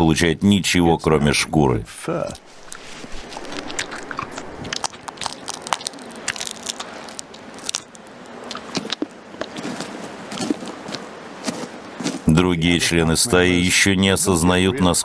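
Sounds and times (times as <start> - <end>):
wolf chewing hide: 2.2 - 12.4.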